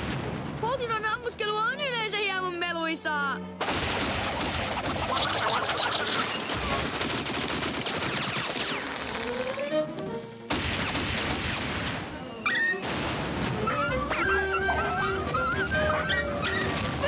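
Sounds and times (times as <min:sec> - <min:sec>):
background music: 0:00.6 - 0:17.0
cartoon ray-gun fire: 0:03.6 - 0:09.4, 0:10.5 - 0:14.2
cartoon explosions: 0:03.6 - 0:09.6, 0:10.5 - 0:17.0.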